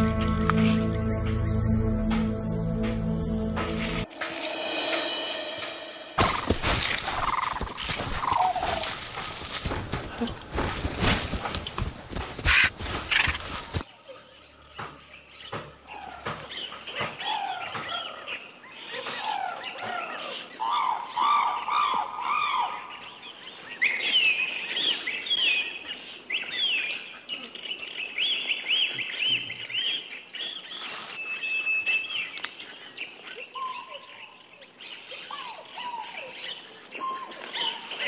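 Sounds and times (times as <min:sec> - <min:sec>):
birds chirping and singing: 0:03.7 - 0:38.0
whistled bird note: 0:04.0 - 0:08.5.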